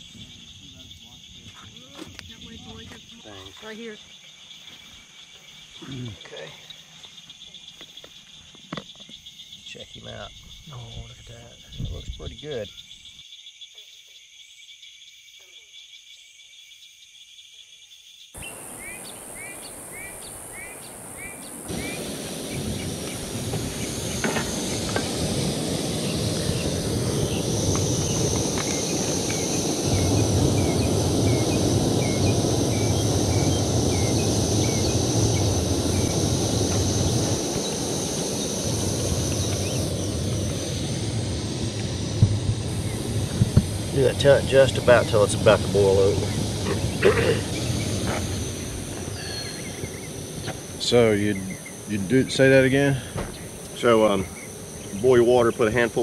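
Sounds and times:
birds chirping: 0.0 - 56.0
crickets calling: 0.0 - 56.0
frogs calling: 0.0 - 56.0
camping stove roaring: 18.4 - 56.0.

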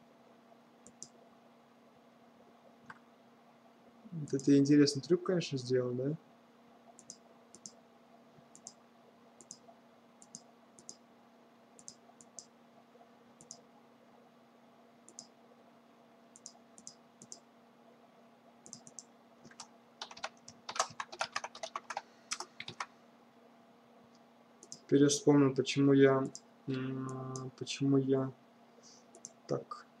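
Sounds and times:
faint steady hum: 0.0 - 30.0
computer mouse clicking: 0.8 - 1.2, 7.0 - 7.8, 8.5 - 8.8, 9.4 - 11.0, 11.8 - 12.5, 13.4 - 13.6, 15.1 - 15.3, 16.4 - 17.4, 18.6 - 22.9, 24.6 - 24.9, 29.1 - 29.4
keyboard typing: 0.8 - 1.2, 7.0 - 7.8, 8.5 - 8.8, 10.2 - 11.0, 11.8 - 12.5, 13.4 - 13.6, 15.1 - 15.3, 16.4 - 17.4, 18.6 - 22.9, 24.6 - 24.9, 29.1 - 29.4.

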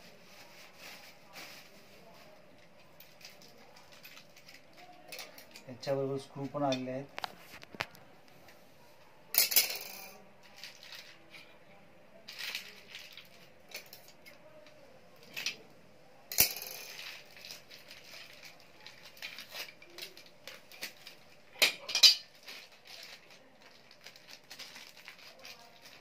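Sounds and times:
screws clinking in plastic bag: 3.0 - 5.6, 10.4 - 11.2, 12.3 - 14.1, 16.4 - 21.3, 21.9 - 26.0
plastic bag crinkling: 10.4 - 11.3, 12.3 - 13.5, 17.0 - 21.5, 22.2 - 26.0.

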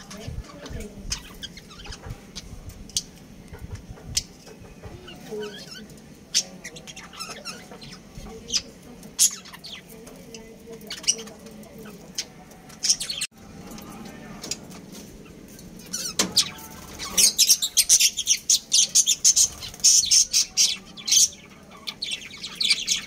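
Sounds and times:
budgerigars chirping: 0.0 - 3.1, 15.2 - 23.0.

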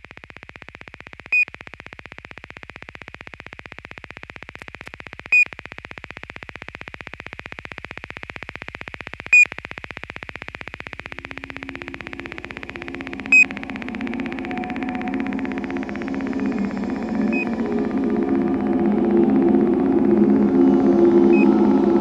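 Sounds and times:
electronic pulsing with high buzz: 10.4 - 22.0
loud high beep: 11.1 - 22.0.

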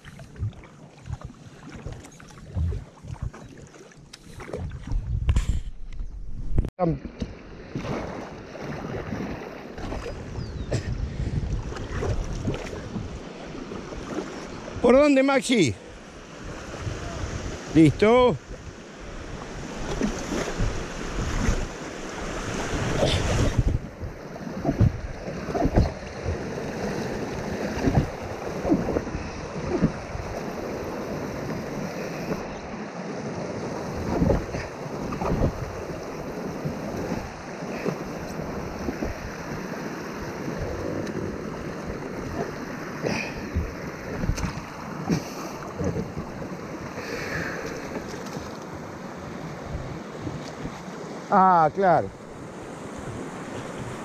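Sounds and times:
paddle knocking on rocks: 23.0 - 26.5, 27.1 - 30.4.

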